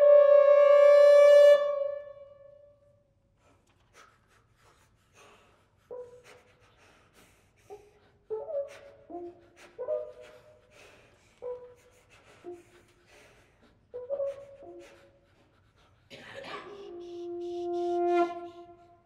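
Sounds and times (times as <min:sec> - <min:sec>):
french horns playing: 0:16.9 - 0:19.0.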